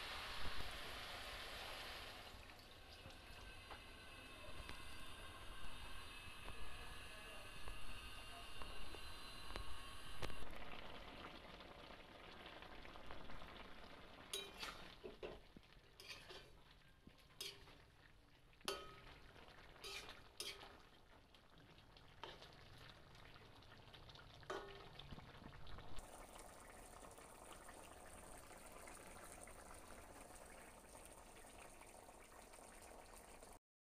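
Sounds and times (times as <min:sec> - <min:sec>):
curry simmering with bubbling hiss: 0:00.0 - 0:33.6.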